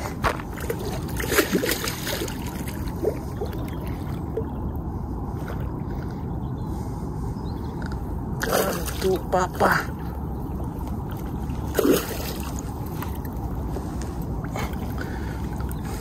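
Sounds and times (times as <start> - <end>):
fish splashing and thrashing: 0.0 - 4.7, 8.4 - 16.0
lapping water: 0.0 - 6.3, 8.4 - 16.0
wind rumble: 0.0 - 16.0.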